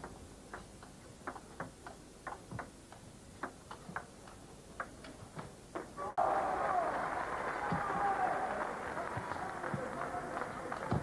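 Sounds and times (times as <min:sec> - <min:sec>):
table tennis ball clicks: 0:00.0 - 0:05.9.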